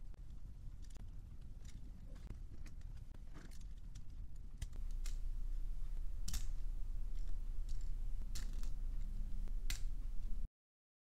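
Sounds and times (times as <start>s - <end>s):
plastic parts clicking: 3.4s - 5.2s, 6.2s - 10.0s
low handling rumble: 4.8s - 10.5s.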